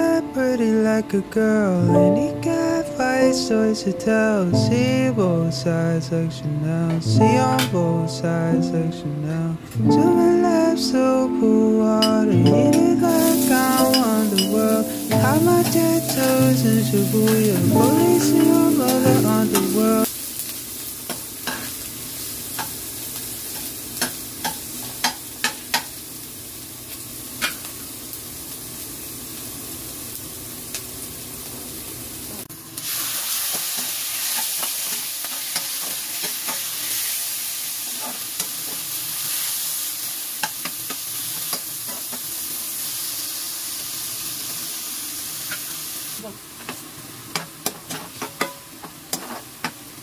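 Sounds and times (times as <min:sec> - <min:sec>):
food sizzling in a wok: 0:12.0 - 0:50.0.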